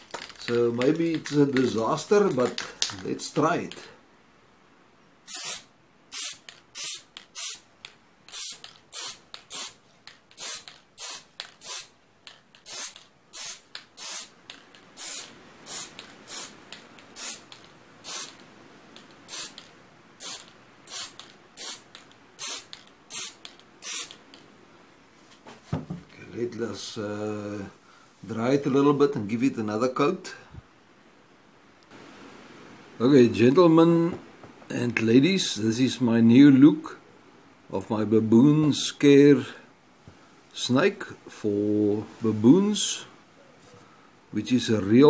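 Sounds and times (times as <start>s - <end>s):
spray paint can hissing: 5.3s - 7.6s, 8.3s - 18.4s, 19.0s - 24.3s.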